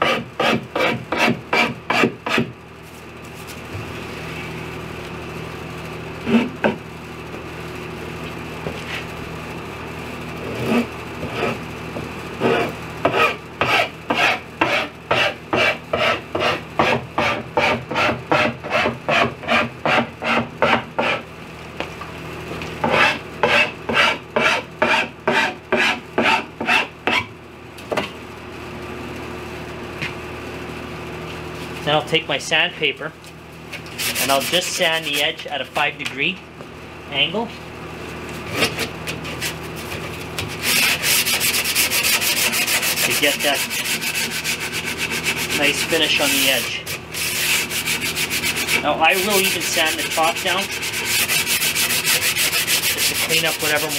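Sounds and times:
metal file rasping: 0:00.0 - 0:02.5, 0:12.4 - 0:21.2, 0:22.8 - 0:27.3, 0:33.9 - 0:35.4, 0:38.5 - 0:53.9
steady low hum: 0:00.0 - 0:53.9.

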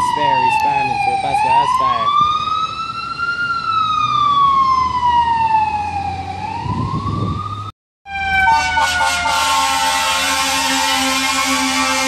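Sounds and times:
fire engine siren wailing: 0:00.0 - 0:12.0.

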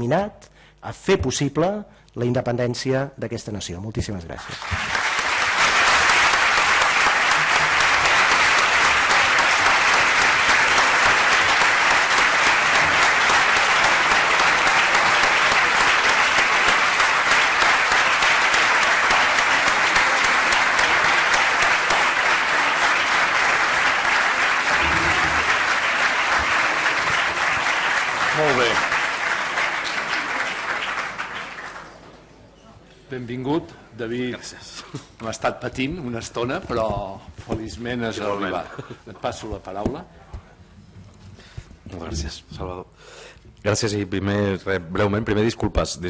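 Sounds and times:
audience applause: 0:04.4 - 0:32.2.

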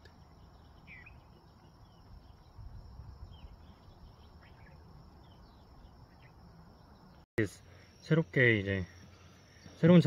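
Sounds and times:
bird chirps: 0:00.0 - 0:10.0
high insect drone: 0:00.0 - 0:10.0
wind rumble on microphone: 0:01.0 - 0:06.4.

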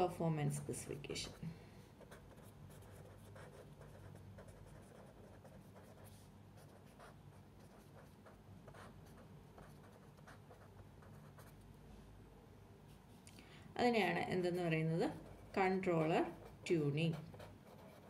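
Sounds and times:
faint low hum: 0:00.0 - 0:18.0
pen scratching on paper: 0:02.0 - 0:11.6, 0:15.0 - 0:18.0.

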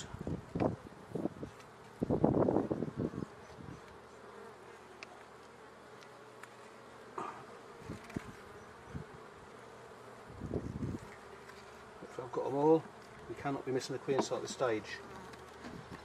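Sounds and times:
bees buzzing: 0:00.0 - 0:16.0
knocks on wooden hive frame: 0:14.1 - 0:14.6.

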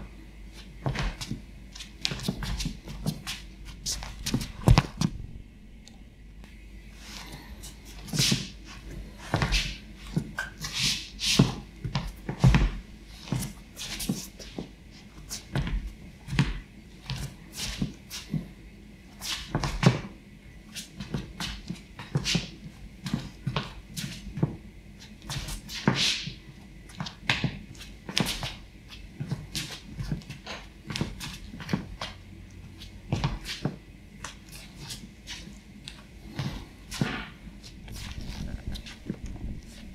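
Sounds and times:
footsteps on wooden floor: 0:02.0 - 0:05.4, 0:36.3 - 0:39.9.

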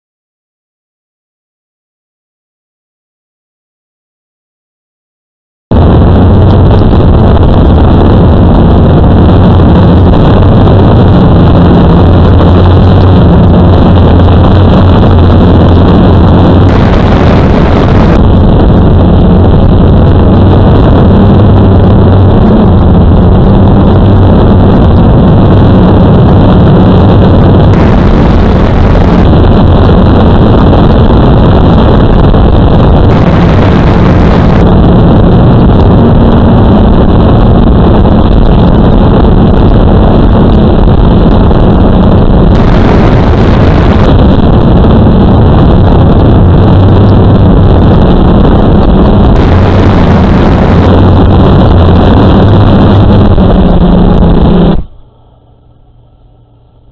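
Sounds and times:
rushing noise: 0:05.7 - 0:56.9
quadcopter motors buzzing: 0:16.7 - 0:18.2, 0:27.7 - 0:29.3, 0:33.1 - 0:34.6, 0:42.6 - 0:44.1, 0:49.4 - 0:51.0.

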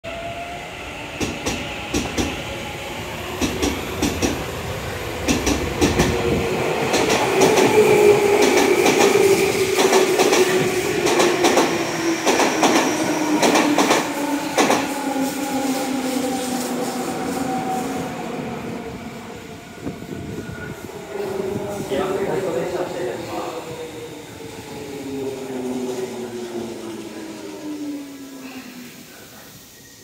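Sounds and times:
electric train whine: 0:00.1 - 0:30.0.

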